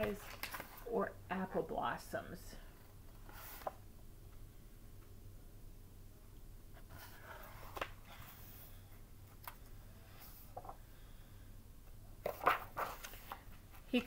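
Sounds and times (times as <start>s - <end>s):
book rustling: 0.0s - 0.9s, 3.1s - 3.8s, 6.8s - 8.8s, 12.2s - 14.0s
low steady hum: 0.0s - 14.0s.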